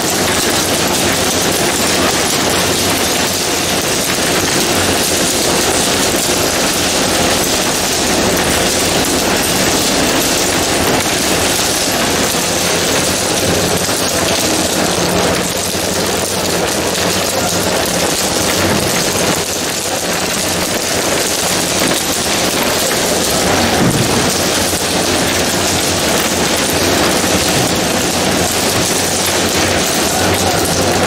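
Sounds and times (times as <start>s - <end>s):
freezer machinery running: 0.0s - 31.0s
frozen pieces clattering into bins: 0.0s - 31.0s.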